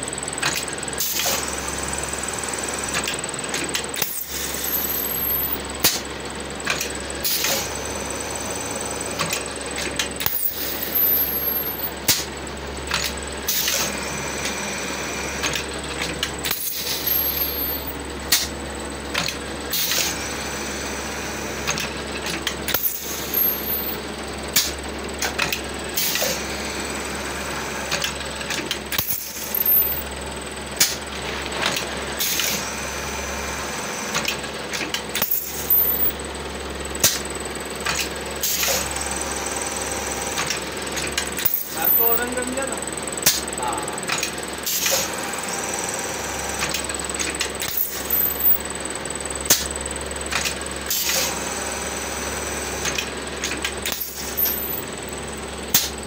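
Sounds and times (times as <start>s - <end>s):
metallic clanks and clinks: 35.2s - 36.1s, 54.0s - 54.8s
machine low hum: 46.6s - 50.1s, 51.4s - 56.0s.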